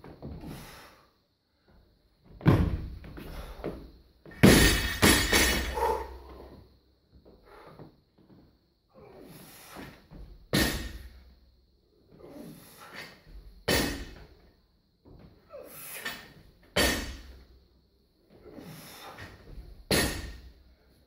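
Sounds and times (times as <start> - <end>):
barbell thudding on floor: 2.4 - 3.2, 4.2 - 6.1.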